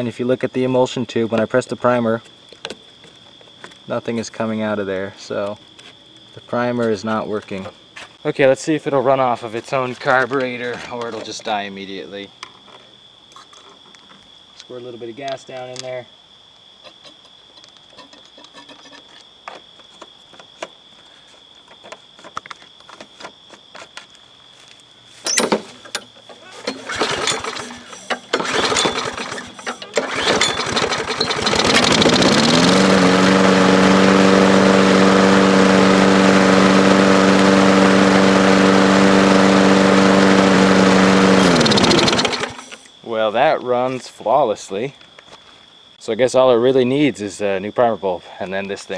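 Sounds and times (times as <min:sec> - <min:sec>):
mower pull-start sputters: 0:25.2 - 0:42.8
mower engine running: 0:26.6 - 0:42.7.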